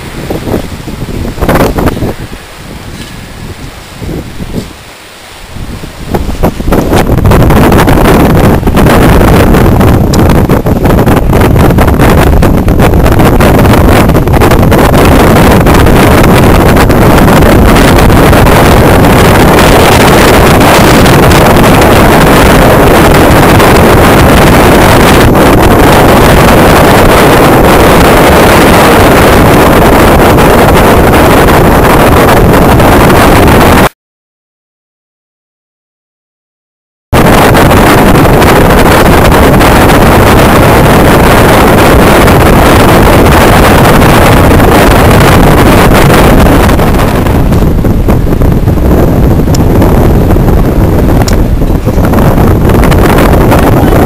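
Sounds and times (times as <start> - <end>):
wind blasting microphone: 0.0 - 34.0, 37.1 - 54.0.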